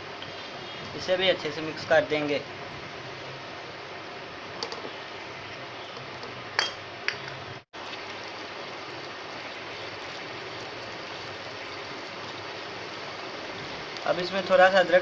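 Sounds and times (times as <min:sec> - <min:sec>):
meat sizzling in a pan: 0:07.8 - 0:15.0.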